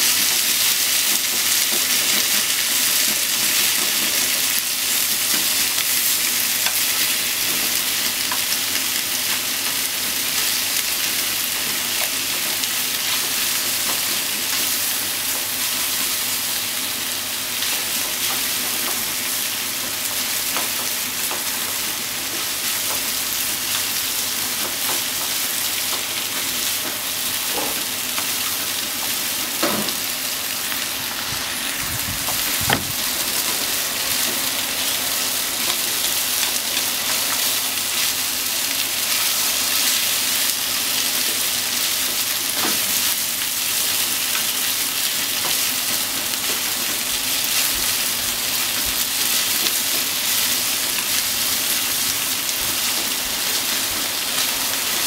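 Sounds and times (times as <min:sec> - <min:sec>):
meat and onion sizzling: 0:00.0 - 0:55.0.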